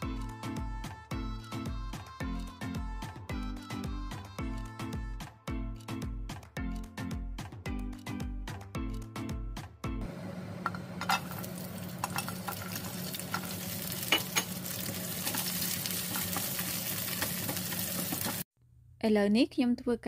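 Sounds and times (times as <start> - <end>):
garlic sizzling in hot oil: 10.5 - 18.5.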